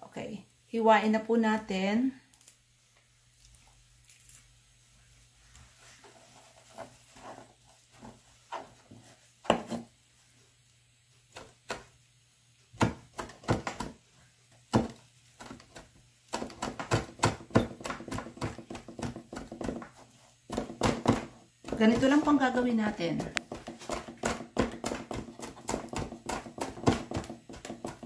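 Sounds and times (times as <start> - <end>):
knife chopping on cutting board: 9.5 - 9.8, 12.8 - 14.0, 14.7 - 28.0.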